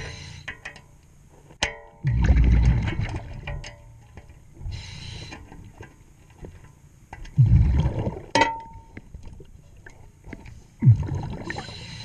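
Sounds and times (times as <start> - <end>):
scuba regulator breathing: 0.0 - 0.5, 4.7 - 5.5, 11.4 - 12.0
bubbling exhale: 7.4 - 8.2, 10.8 - 12.0.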